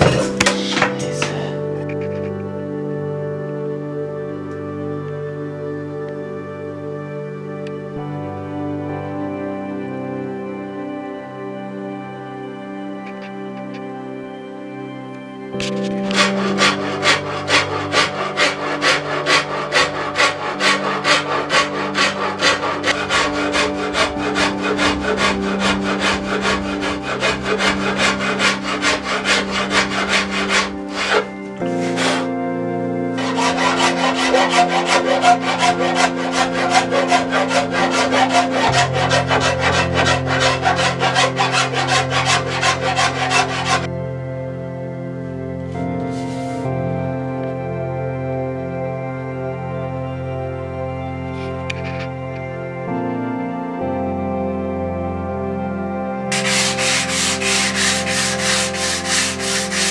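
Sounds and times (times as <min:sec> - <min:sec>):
hand tool shaving wood: 0:00.0 - 0:01.5, 0:15.6 - 0:32.3, 0:33.2 - 0:43.9, 0:56.3 - 0:59.9.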